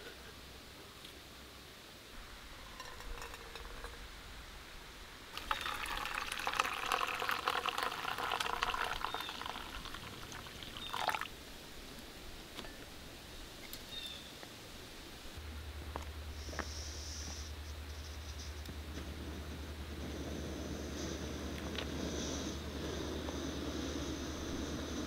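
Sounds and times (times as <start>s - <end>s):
coffee pouring into metal mug: 2.5s - 4.0s, 5.3s - 11.3s.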